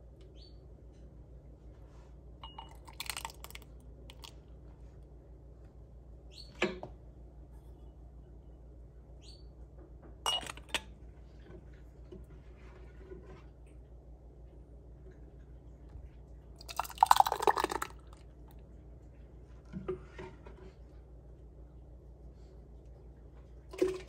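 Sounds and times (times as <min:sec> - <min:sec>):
metal funnel clinking on glass jars: 0:02.4 - 0:03.5, 0:10.3 - 0:10.7.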